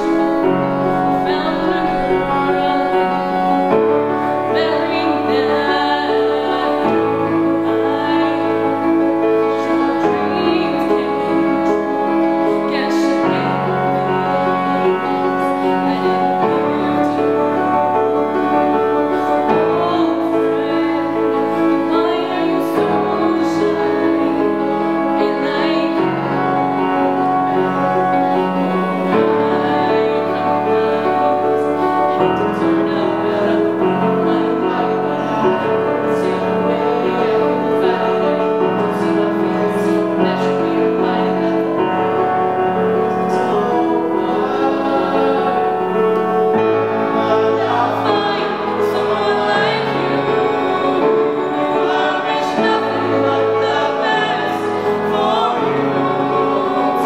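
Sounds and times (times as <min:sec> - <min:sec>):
young woman singing ballad: 0:00.0 - 0:08.6, 0:09.5 - 0:18.0, 0:19.1 - 0:26.5, 0:43.0 - 0:57.0
grand piano: 0:00.0 - 0:57.0.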